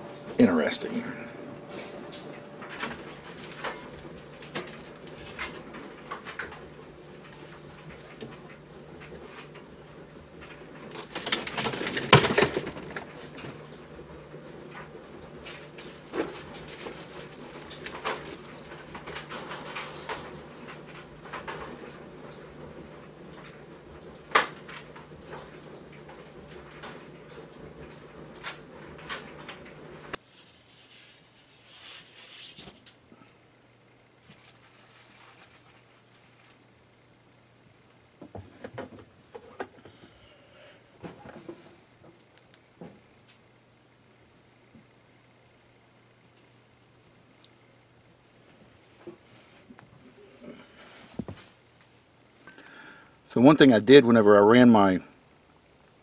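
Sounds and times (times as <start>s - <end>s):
faint steady hum: 0.0s - 56.0s
faint rustling: 34.2s - 36.8s
quiet shuffling: 34.2s - 36.8s.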